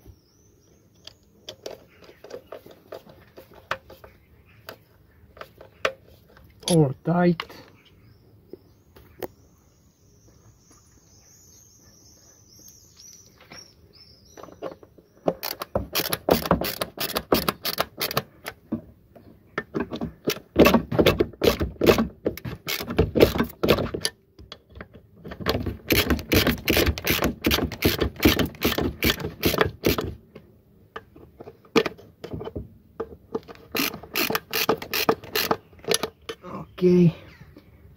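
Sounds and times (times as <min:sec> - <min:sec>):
hand ratchet clicking: 0:15.4 - 0:18.3, 0:25.9 - 0:30.1, 0:33.4 - 0:36.1.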